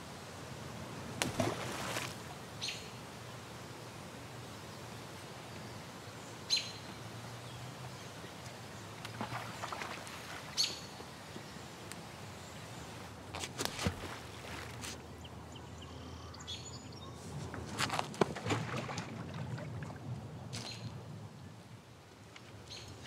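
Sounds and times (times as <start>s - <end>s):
stones splashing on water: 1.2s - 2.2s, 13.4s - 14.8s, 17.7s - 19.9s.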